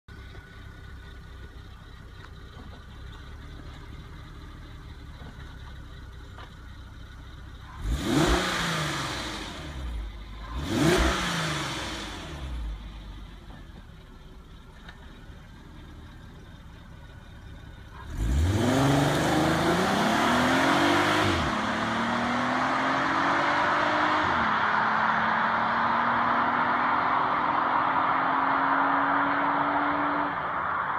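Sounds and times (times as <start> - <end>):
car engine idling and revving: 0.0 - 30.9
car accelerating away: 7.5 - 13.8, 15.9 - 30.9.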